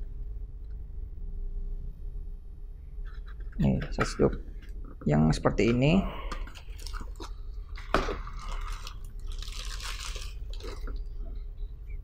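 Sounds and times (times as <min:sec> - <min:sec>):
plastic bag crinkling: 0:06.4 - 0:11.1.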